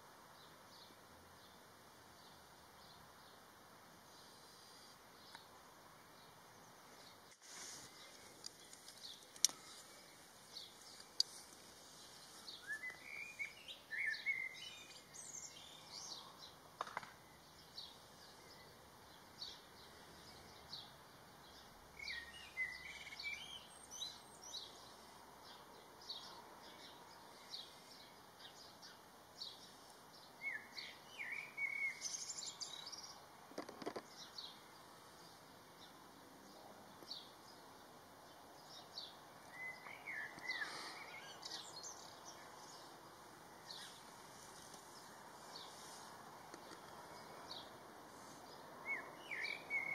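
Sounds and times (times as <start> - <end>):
small songbirds chirping: 0.0 - 49.9
warbled birdsong phrase: 34.1 - 44.1, 48.4 - 49.9.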